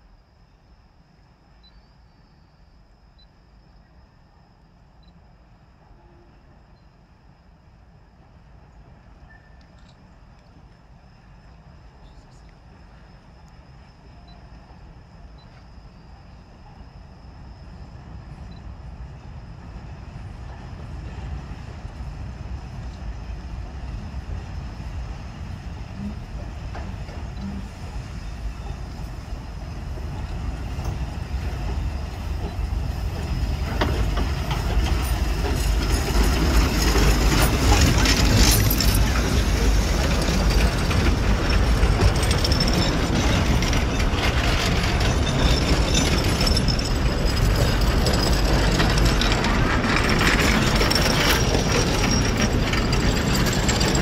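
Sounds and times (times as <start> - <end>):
steam train rumbling past: 10.5 - 54.0
wheels clicking on track: 25.8 - 54.0.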